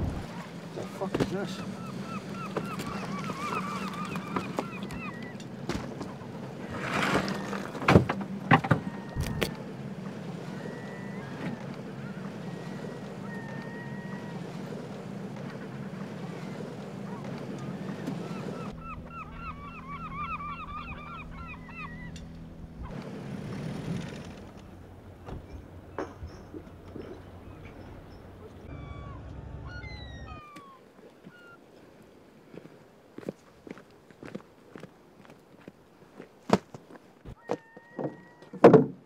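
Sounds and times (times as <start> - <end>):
birds calling: 0.0 - 31.8
boat engine humming: 0.0 - 38.6.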